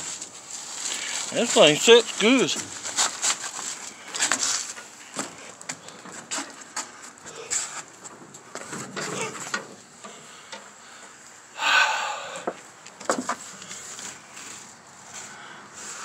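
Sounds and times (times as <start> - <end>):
scraping rustle: 0.0 - 10.4, 13.0 - 16.0
scuffs: 0.4 - 7.9.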